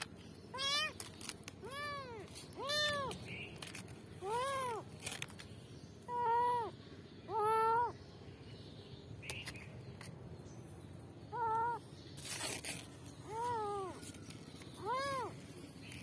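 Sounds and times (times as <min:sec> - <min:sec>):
kitten meowing: 0:00.5 - 0:01.0, 0:01.6 - 0:03.2, 0:04.2 - 0:04.9, 0:06.1 - 0:08.0, 0:11.3 - 0:11.8, 0:13.2 - 0:14.0, 0:14.8 - 0:15.4.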